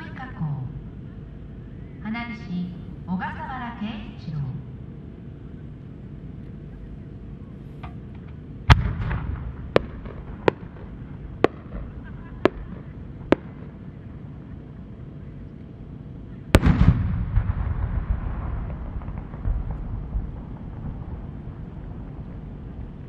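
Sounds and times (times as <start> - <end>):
firework shell booming: 7.8 - 13.8, 16.5 - 23.0
fireworks bangs and cracks: 8.7 - 13.7, 16.5 - 23.0.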